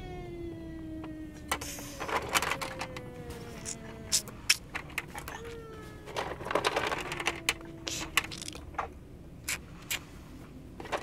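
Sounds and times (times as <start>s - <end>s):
plastic toys clicking on stone: 6.2s - 8.8s.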